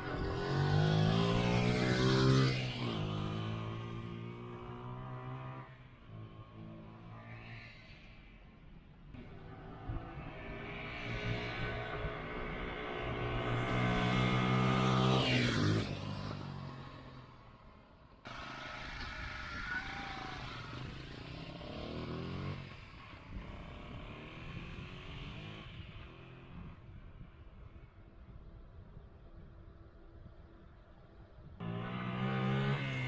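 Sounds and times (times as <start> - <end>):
motorbike engine passing by: 0.0 - 7.7, 9.2 - 17.5, 18.3 - 27.0, 31.6 - 33.0.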